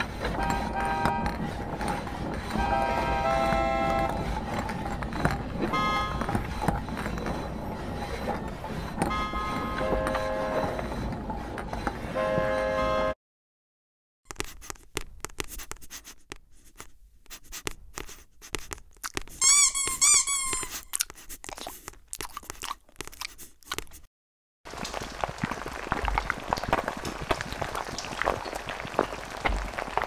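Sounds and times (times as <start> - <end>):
dense crackling: 0.0 - 10.9, 24.7 - 30.0
squeaky chirps: 19.4 - 21.0.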